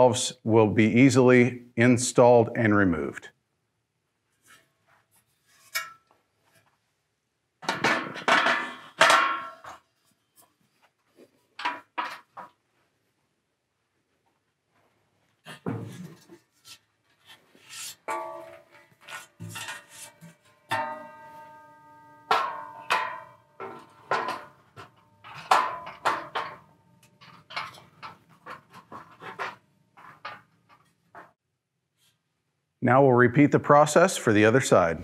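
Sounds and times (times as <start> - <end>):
metal shelf clanking against frame: 7.6 - 9.8, 17.7 - 31.3.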